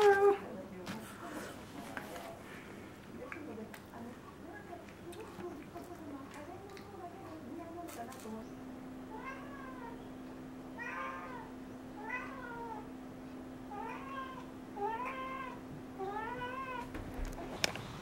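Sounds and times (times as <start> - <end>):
faint steady hum: 0.0 - 18.0
cat meowing: 9.1 - 10.0, 10.8 - 12.9.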